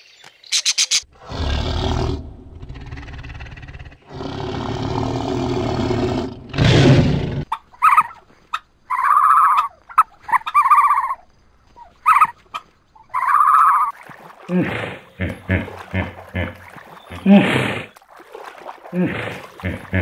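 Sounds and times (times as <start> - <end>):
tiger growling: 1.1 - 7.5
tiger roar: 1.1 - 7.5.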